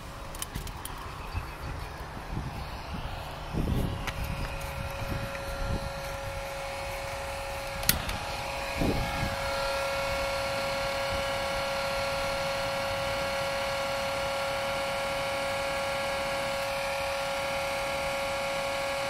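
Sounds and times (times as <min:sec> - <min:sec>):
electric fan whining: 0:00.0 - 0:19.0
torch lighter click: 0:07.6 - 0:08.2.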